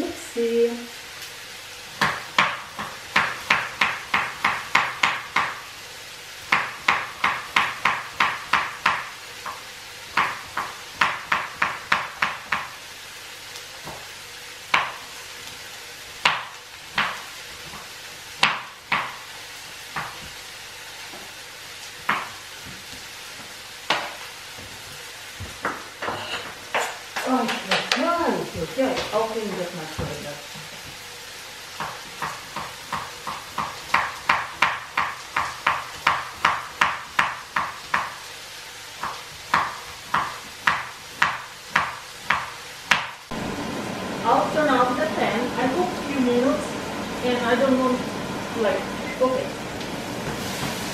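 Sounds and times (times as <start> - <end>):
knife chopping on cutting board: 2.0 - 5.6, 6.5 - 12.8, 14.7 - 15.0, 16.2 - 19.2, 22.0 - 22.8, 31.8 - 38.2, 39.0 - 43.2.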